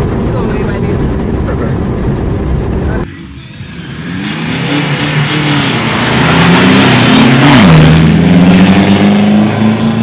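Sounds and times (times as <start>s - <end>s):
engines revving and launching: 3.0s - 10.0s.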